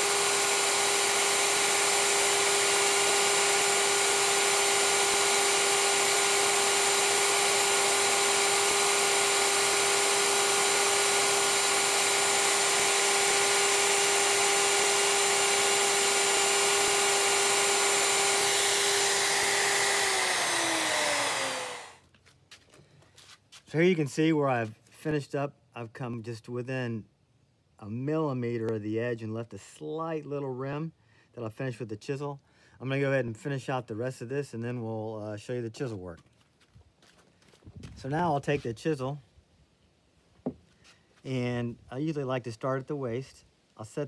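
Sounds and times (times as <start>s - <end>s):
plunge router running: 0.0s - 22.0s
router winding down: 0.0s - 22.0s.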